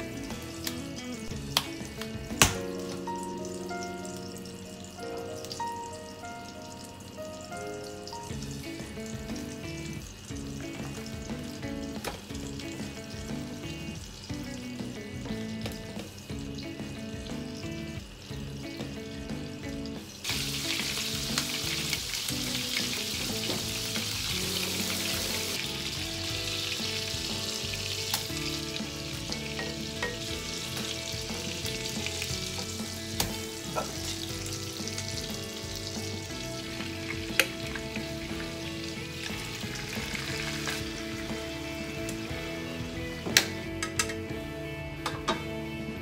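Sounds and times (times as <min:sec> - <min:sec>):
patties sizzling in frying pan: 0:00.0 - 0:44.5
spatula tapping pan: 0:29.3 - 0:33.4.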